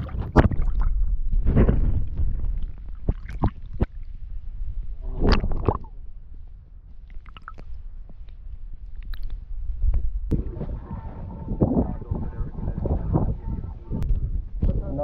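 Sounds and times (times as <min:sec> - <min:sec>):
water splashing and gurgling: 0:00.0 - 0:04.1, 0:05.0 - 0:06.0, 0:07.0 - 0:07.8
muffled underwater rumble: 0:00.0 - 0:15.0.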